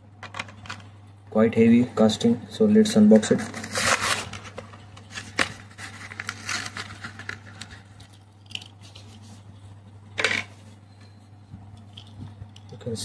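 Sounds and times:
plastic blister packaging being torn: 3.6 - 9.0.

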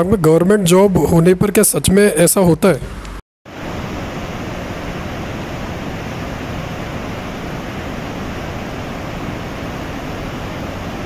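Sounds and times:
river rushing over boulders: 3.5 - 11.0.

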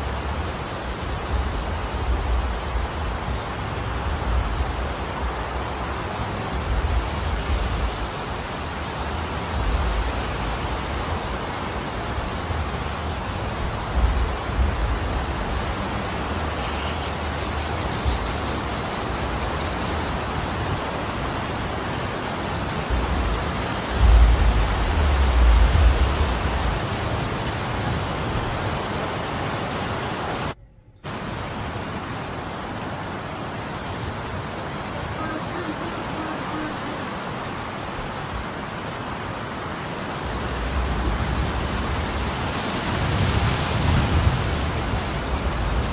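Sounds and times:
wind blowing: 0.0 - 45.9
wind buffeting microphone: 19.8 - 29.0.

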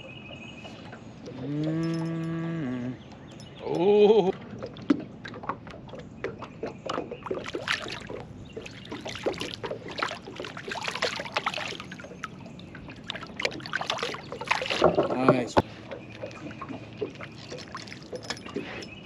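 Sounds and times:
fish splashing at water surface: 4.5 - 19.0.

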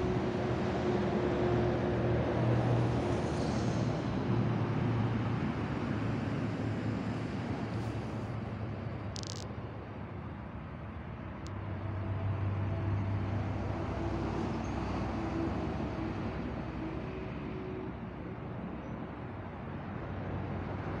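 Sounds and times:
steady background noise: 0.0 - 13.8
vehicle engine hum passing: 0.0 - 21.0.

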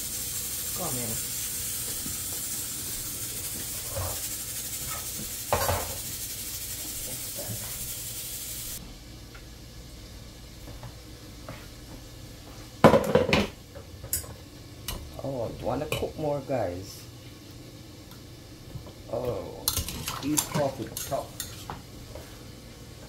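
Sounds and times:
pots steaming on gas stove: 0.0 - 23.0
metal cookware clattering: 4.8 - 6.0, 19.7 - 21.6.

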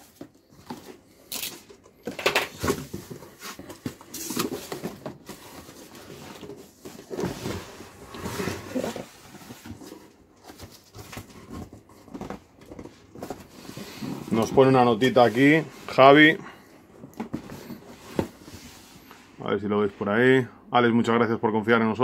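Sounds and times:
cardboard flaps scraping and rustling: 2.5 - 16.4.

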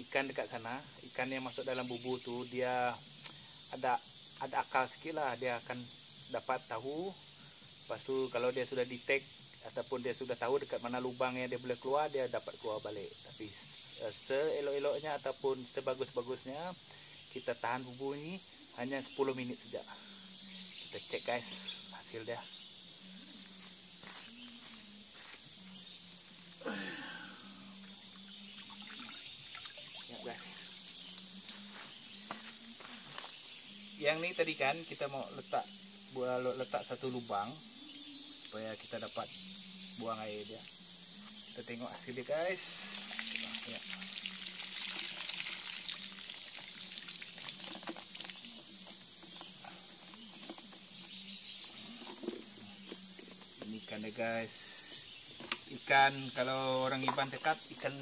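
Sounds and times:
insects chirping: 0.0 - 58.0
water dripping: 28.1 - 32.5, 42.8 - 49.0
water pouring onto gravel: 42.7 - 48.4.

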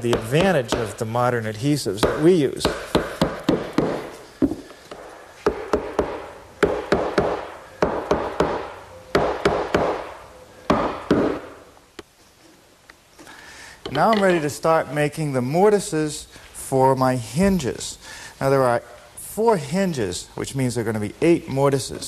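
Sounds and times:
mallet knocking wooden joints: 0.0 - 1.0, 2.0 - 10.0.

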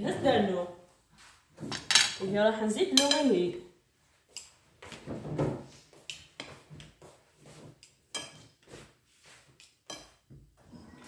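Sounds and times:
metal spoon scraping a glass bowl: 8.1 - 8.6, 9.9 - 11.0.

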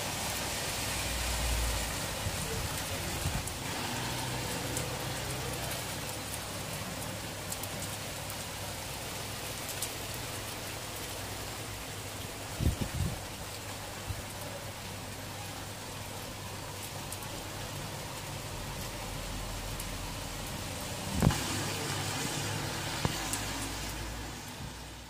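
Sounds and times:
van driving past on wet road: 0.0 - 7.8, 18.5 - 25.0
rain on a wet street: 0.0 - 25.0.

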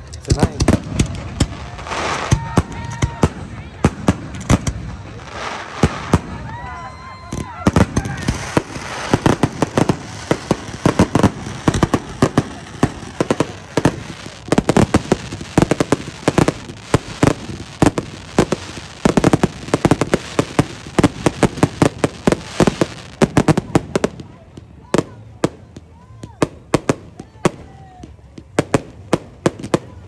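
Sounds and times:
fireworks crackling: 0.0 - 30.0
fireworks shells bursting: 7.3 - 23.3.

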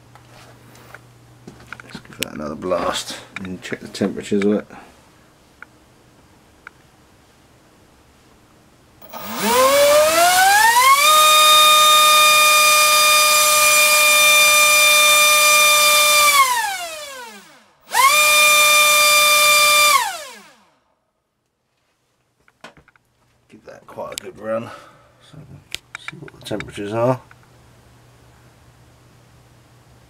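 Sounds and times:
electric motor whine: 9.0 - 20.7.

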